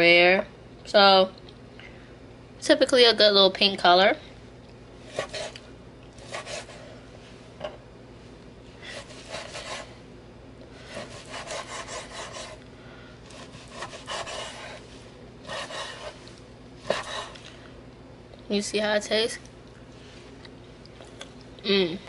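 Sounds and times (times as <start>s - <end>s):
knife slicing steak on board: 16.8s - 17.3s.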